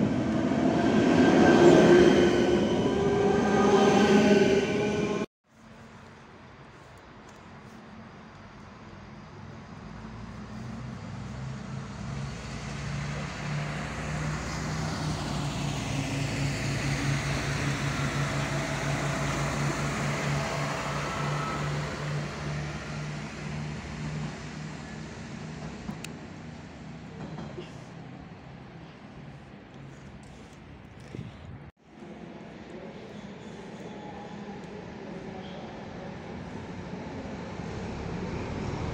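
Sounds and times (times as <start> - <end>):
train diesel engine droning: 0.0 - 5.9, 10.0 - 30.8
wheels hissing on rails: 10.2 - 30.7.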